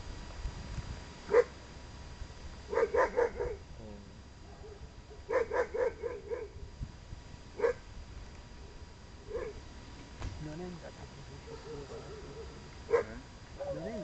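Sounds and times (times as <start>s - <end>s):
dog barking: 1.3s - 1.5s, 2.7s - 3.6s, 4.4s - 6.6s, 7.6s - 7.8s, 9.3s - 9.6s, 11.4s - 13.9s.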